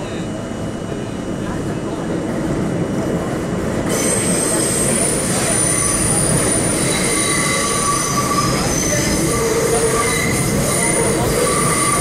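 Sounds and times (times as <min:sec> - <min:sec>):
train wheels rumbling on rail: 0:00.0 - 0:12.0
high-pitched wheel squeal: 0:03.9 - 0:12.0.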